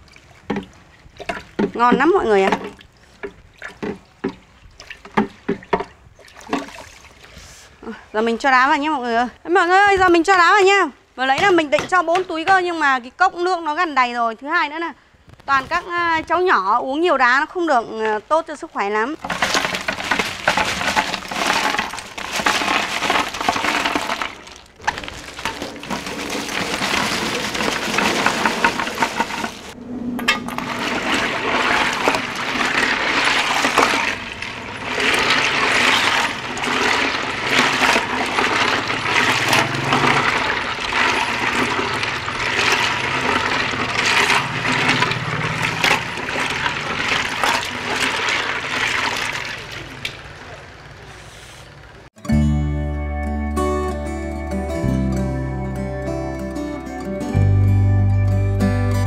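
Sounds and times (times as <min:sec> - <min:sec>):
ice splashing into juice: 0:19.2 - 0:29.8, 0:30.6 - 0:50.2.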